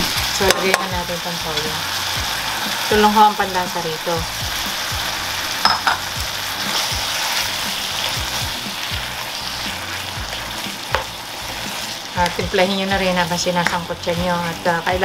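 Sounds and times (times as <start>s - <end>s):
meat sizzling in a frying pan: 0.0s - 15.0s
spatula knocking on pan: 5.6s - 7.1s, 10.8s - 11.2s.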